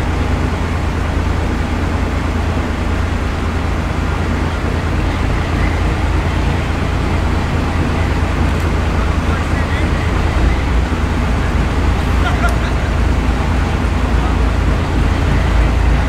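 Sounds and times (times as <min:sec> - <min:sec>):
diesel locomotive idling: 0:00.0 - 0:16.0.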